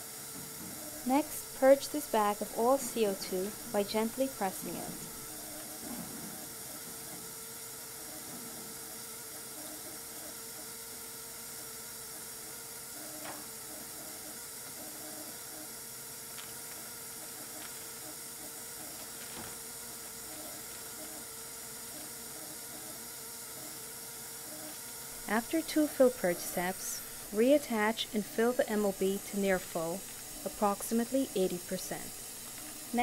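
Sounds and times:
gas venting hiss: 0.0s - 10.1s, 15.9s - 33.0s.

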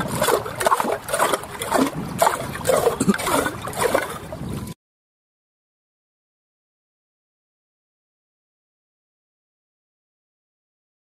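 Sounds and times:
water sloshing: 0.0s - 4.8s.

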